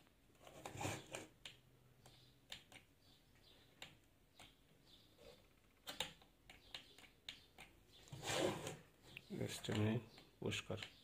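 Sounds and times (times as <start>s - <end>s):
soft clicks: 1.4s - 7.8s, 9.1s - 11.0s.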